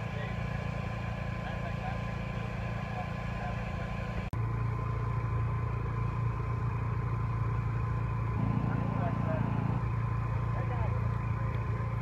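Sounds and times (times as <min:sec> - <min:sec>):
engine droning with a whine: 0:00.0 - 0:12.0.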